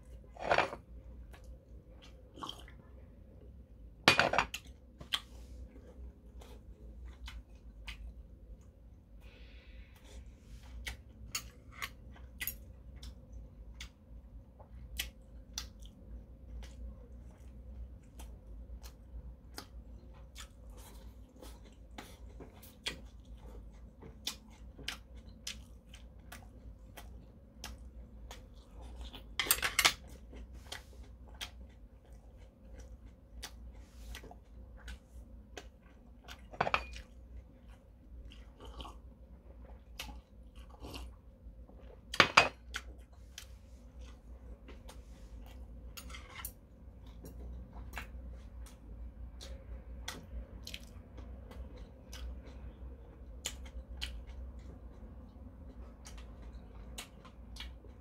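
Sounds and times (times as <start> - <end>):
person chewing: 1.2 - 3.0, 4.5 - 8.8, 10.0 - 29.4, 30.0 - 58.0.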